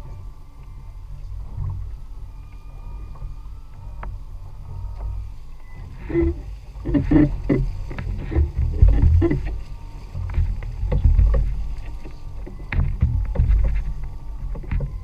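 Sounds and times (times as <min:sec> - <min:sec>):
low rumble of wind and boat: 0:00.0 - 0:15.0
water splashing at boat stern: 0:03.0 - 0:15.0.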